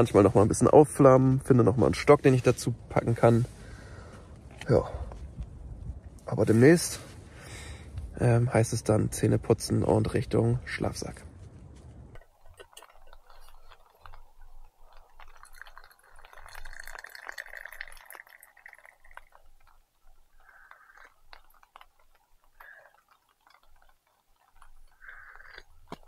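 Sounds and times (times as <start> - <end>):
liquid pouring into cup: 12.2 - 26.0.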